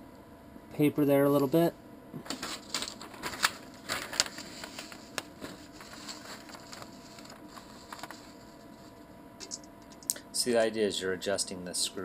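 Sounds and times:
paper rustling: 0:02.2 - 0:09.0
light clicks and crinkles: 0:02.3 - 0:08.7.

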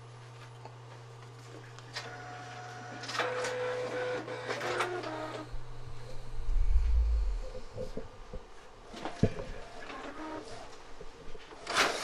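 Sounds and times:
printer motors whining: 0:01.9 - 0:06.2, 0:08.9 - 0:12.0.

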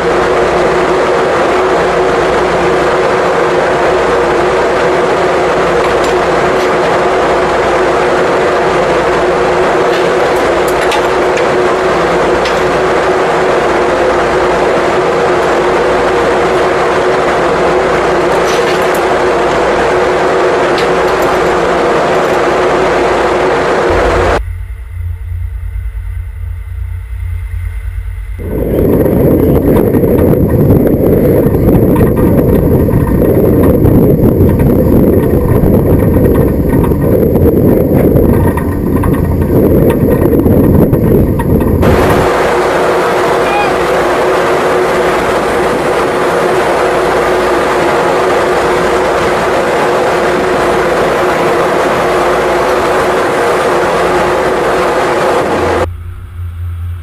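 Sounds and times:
boat engine and water rushing: 0:00.0 - 0:57.0
ship machinery droning: 0:00.0 - 0:57.0.

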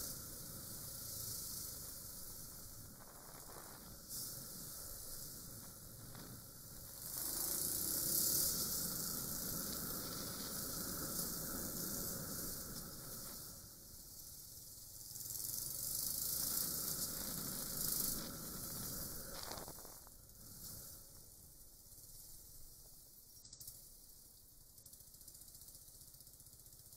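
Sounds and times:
road noise: 0:00.0 - 0:21.1.

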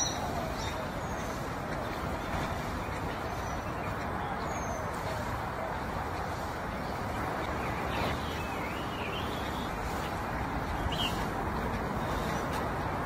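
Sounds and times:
faint bird chirps: 0:00.0 - 0:01.5
outdoor background noise: 0:00.0 - 0:13.0.

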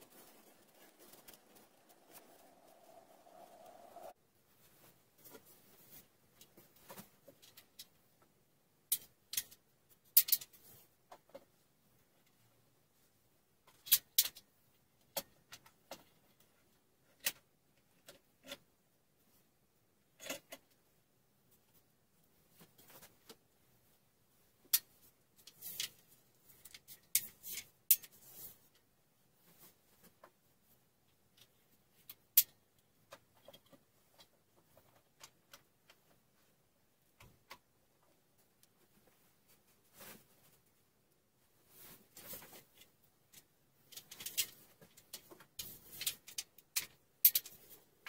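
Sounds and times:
scraping rattles: 0:00.0 - 0:04.2.

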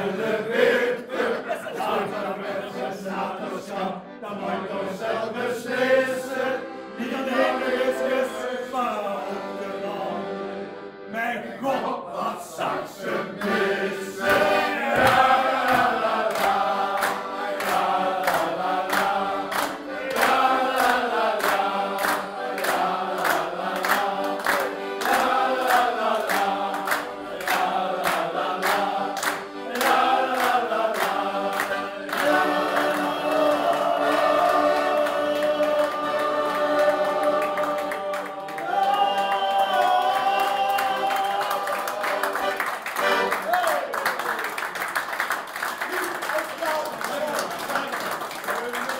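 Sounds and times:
men singing together: 0:00.0 - 0:10.4, 0:11.7 - 0:42.6
accordion: 0:00.0 - 0:44.0
people clapping in time: 0:13.4 - 0:48.9.

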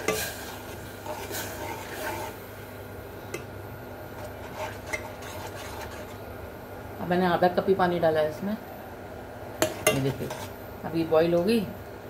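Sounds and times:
sugar bubbling in saucepan: 0:00.0 - 0:06.4.

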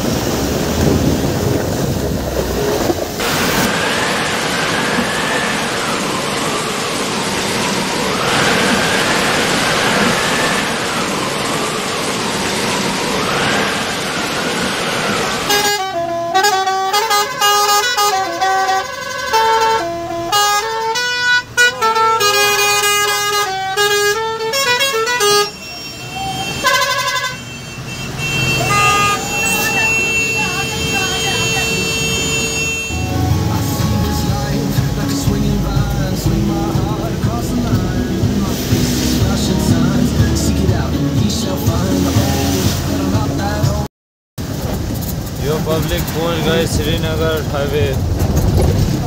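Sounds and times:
steady rain: 0:00.0 - 0:15.9, 0:32.9 - 0:43.2, 0:44.4 - 0:49.0
road noise: 0:00.0 - 0:49.0
truck musical horn playing tune: 0:15.5 - 0:41.0.

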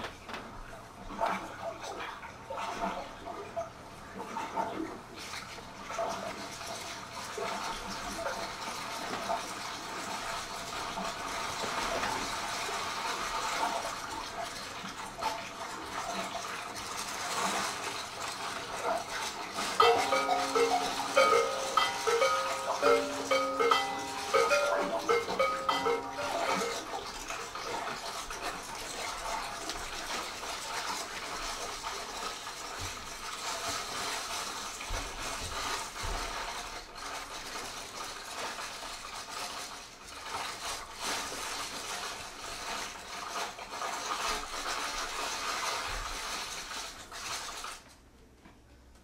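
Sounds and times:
percussion clicks and rattles: 0:19.5 - 0:29.0.

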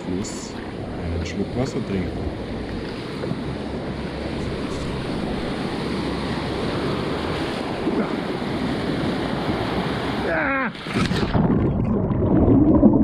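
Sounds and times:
whitewater rushing: 0:00.0 - 0:11.6
water splashing around paddleboard: 0:02.1 - 0:12.1.

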